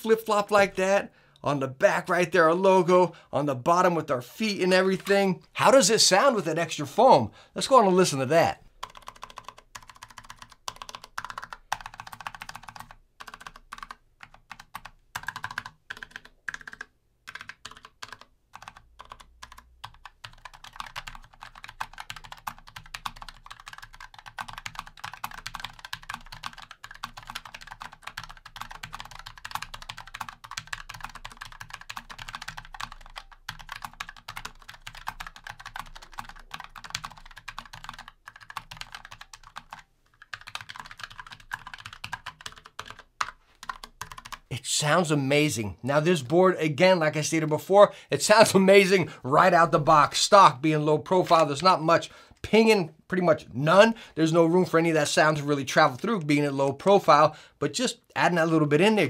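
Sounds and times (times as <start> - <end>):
mechanical keyboard typing: 8.8 - 44.5.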